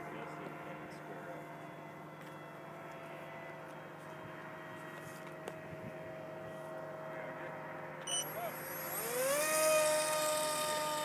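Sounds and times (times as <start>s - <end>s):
electric motor whine: 8.0s - 11.0s.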